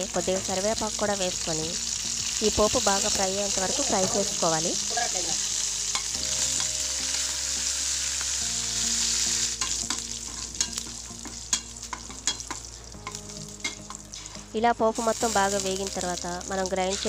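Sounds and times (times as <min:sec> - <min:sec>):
oil sizzling in pan: 0:00.0 - 0:17.0
metal spatula tapping pan: 0:05.9 - 0:06.8, 0:09.6 - 0:14.4.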